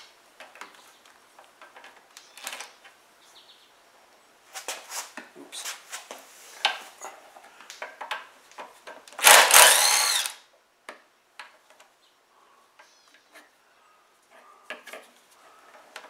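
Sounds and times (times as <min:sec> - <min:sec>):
power drill motor whirring: 0:09.2 - 0:10.4.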